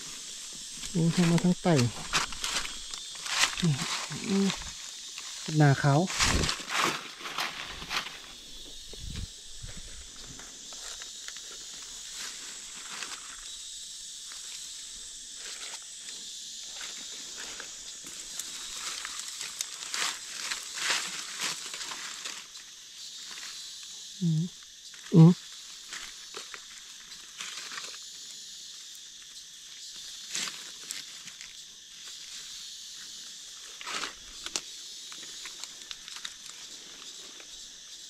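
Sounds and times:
dry leaves rustling: 0.0 - 13.6, 16.7 - 23.5, 25.8 - 28.0, 33.6 - 37.6
high-pitched hiss: 0.0 - 38.0.

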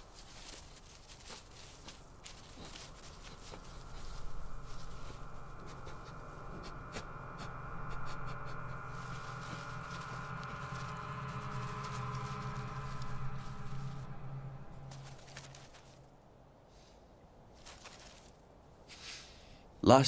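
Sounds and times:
dry grass rustling and crackling: 0.0 - 16.2, 17.5 - 19.1
low hum: 0.0 - 16.6
high held tone: 1.7 - 16.0.

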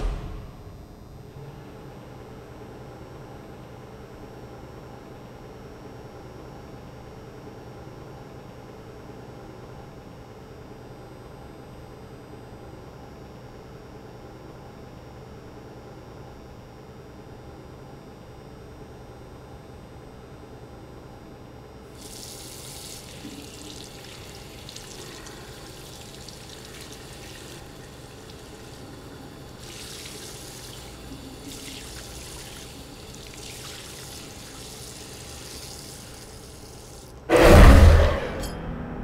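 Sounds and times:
tap water running into sink: 22.0 - 37.1.

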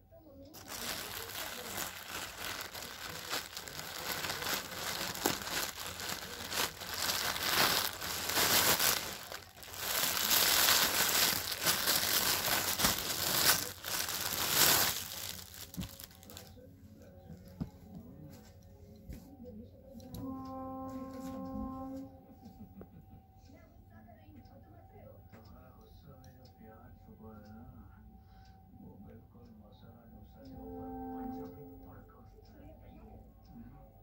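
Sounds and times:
plastic packaging crinkling: 0.6 - 16.6.

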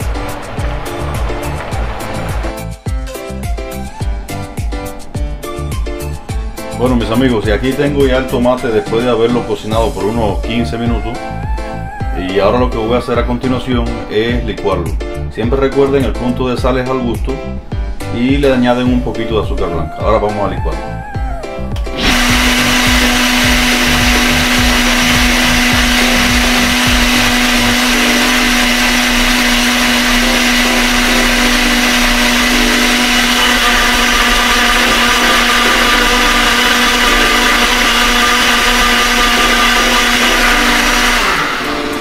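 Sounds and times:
blender motor running: 0.0 - 2.8, 21.8 - 42.0
low churning: 0.0 - 2.8, 20.8 - 42.0.

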